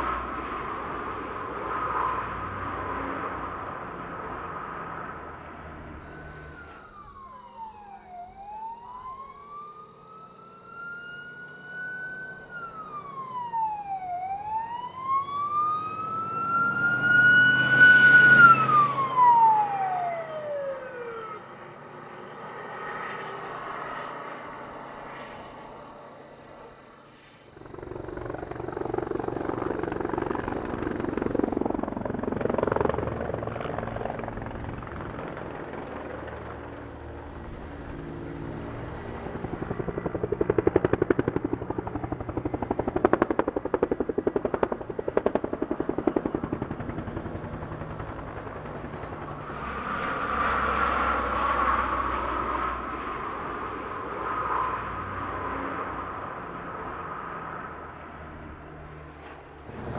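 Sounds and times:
fire truck siren wailing: 0:00.0 - 0:26.9, 0:27.5 - 0:59.9
truck engine: 0:00.0 - 0:59.9
steady rushing noise: 0:27.5 - 0:49.9, 0:59.4 - 0:59.9.

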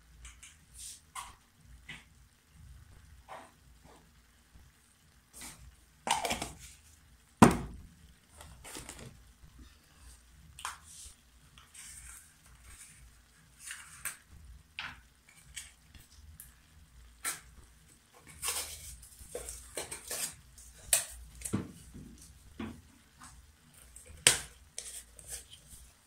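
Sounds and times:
knocks and light clatter: 0:21.5 - 0:22.9.

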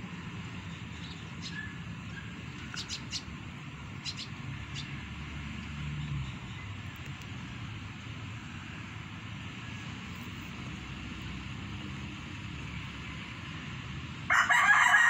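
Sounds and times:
steady outdoor hiss: 0:00.0 - 0:15.0
high bird chirps: 0:04.0 - 0:04.9.

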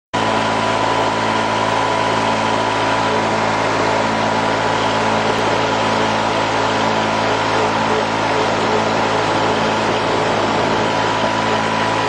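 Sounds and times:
tractor engine running: 0:00.2 - 0:12.0.

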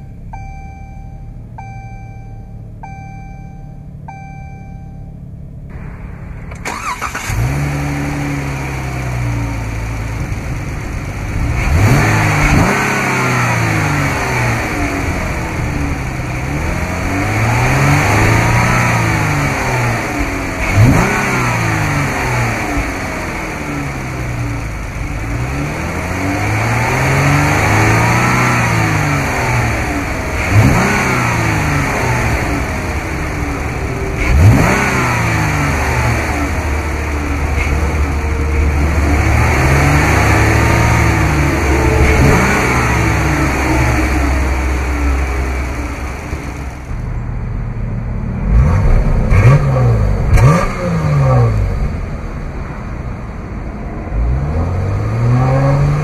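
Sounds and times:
car engine starting and revving: 0:00.0 - 0:56.0.

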